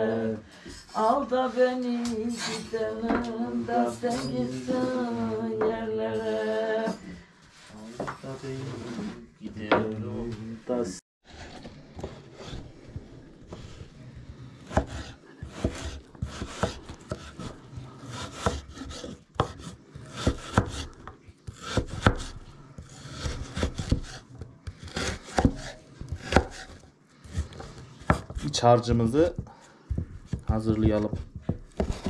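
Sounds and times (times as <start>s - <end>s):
knife chopping on cutting board: 14.6s - 32.0s.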